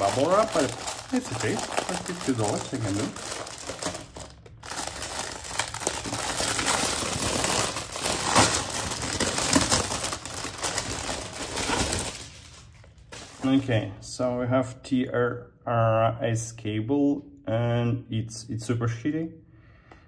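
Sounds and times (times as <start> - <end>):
bubble wrap and plastic bag crinkling: 0.0 - 13.6.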